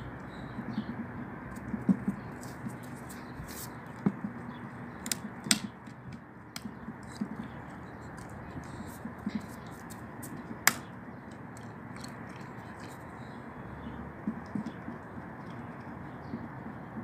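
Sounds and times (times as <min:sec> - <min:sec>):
dog gnawing wood: 0:01.6 - 0:13.3.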